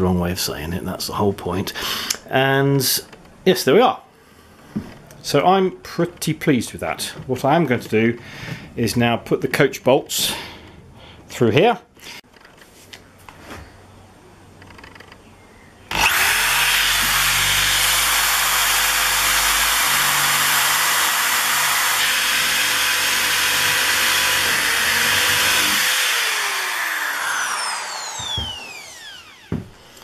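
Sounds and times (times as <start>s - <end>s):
drill boring into wood: 15.9s - 29.6s.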